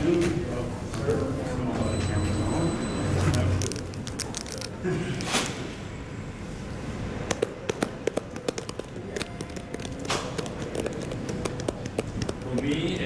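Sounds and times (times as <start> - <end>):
sharp clicks and taps: 7.3 - 13.0.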